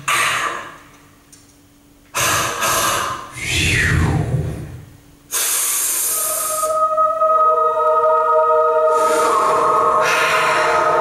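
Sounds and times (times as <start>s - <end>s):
saxophone breath noise: 5.3s - 6.9s, 8.8s - 11.0s.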